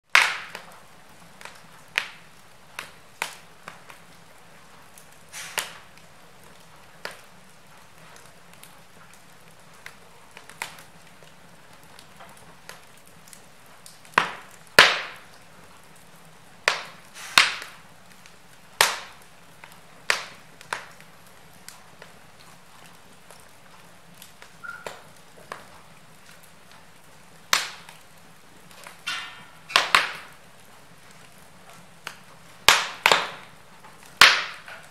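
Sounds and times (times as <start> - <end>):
wood fire crackling: 0.0 - 34.9
faint steady hiss: 0.1 - 34.9.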